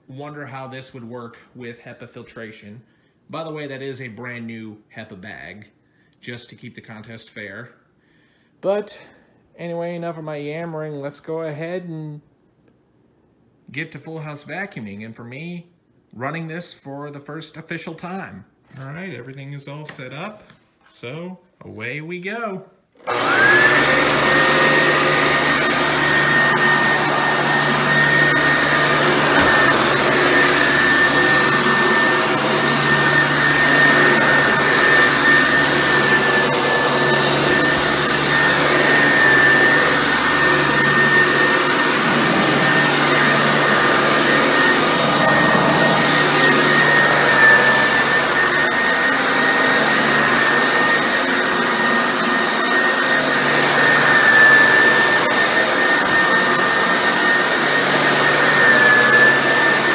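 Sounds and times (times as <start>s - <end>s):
vacuum cleaner running on carpet: 23.0s - 59.9s.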